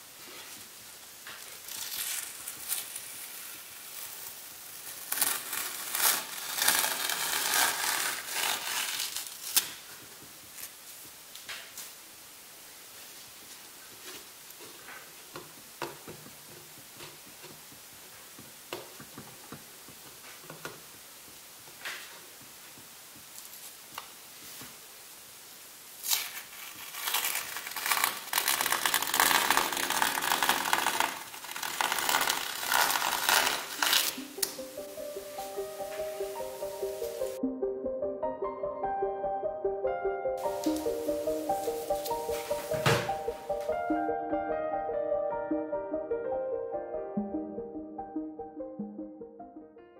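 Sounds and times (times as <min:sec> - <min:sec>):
masking tape being peeled: 0:01.4 - 0:10.9, 0:26.0 - 0:34.7, 0:40.4 - 0:42.8
tape snapping: 0:26.0 - 0:34.7.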